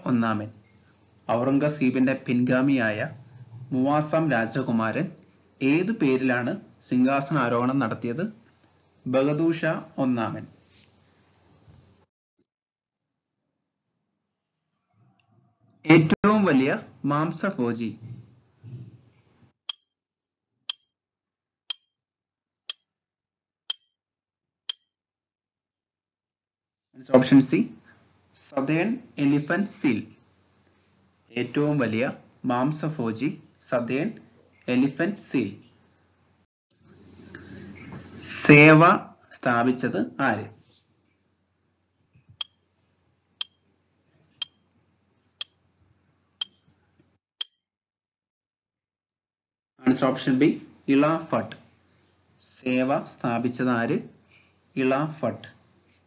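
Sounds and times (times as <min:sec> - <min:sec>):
clock-like timer ticks: 0:46.4 - 0:46.6.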